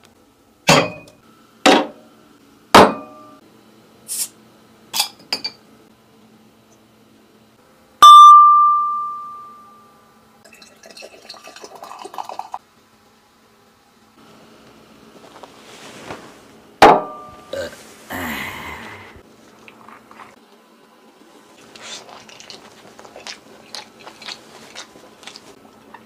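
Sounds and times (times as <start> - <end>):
drinking glass ringing: 8.0 - 9.9
beer pouring and fizzing: 10.4 - 12.6.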